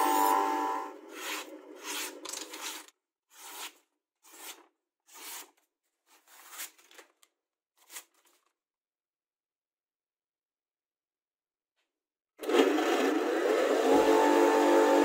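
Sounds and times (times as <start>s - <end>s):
knife slicing paper: 1.1s - 7.1s, 7.8s - 8.4s.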